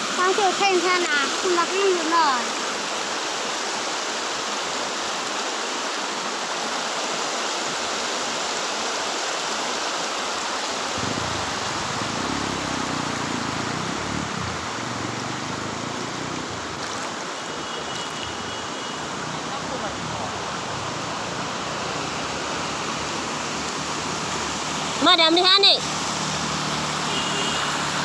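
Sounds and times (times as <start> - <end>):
floodwater rushing over road: 0.0 - 28.0
low rumble: 11.0 - 14.7.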